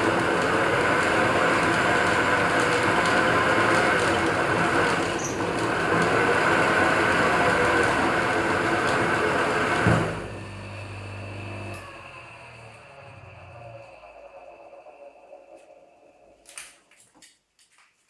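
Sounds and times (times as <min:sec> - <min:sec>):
metal lathe running: 0:00.0 - 0:16.5
knock on lathe: 0:09.8 - 0:10.3.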